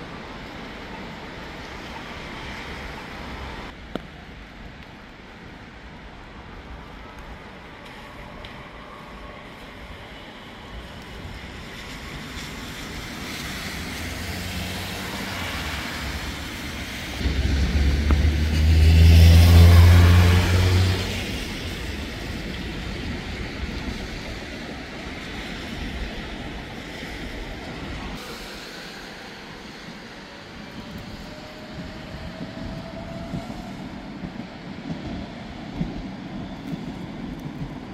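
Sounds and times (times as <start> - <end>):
city traffic noise: 0.0 - 37.9
vehicle passing by: 13.4 - 16.6, 17.2 - 21.9.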